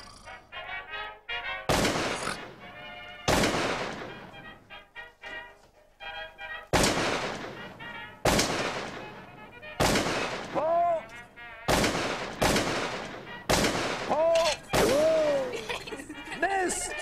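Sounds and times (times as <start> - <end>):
shotgun shots: 1.7 - 2.6, 3.2 - 4.5, 6.7 - 11.0, 11.7 - 15.5
person shouting: 10.6 - 11.1, 14.1 - 15.6.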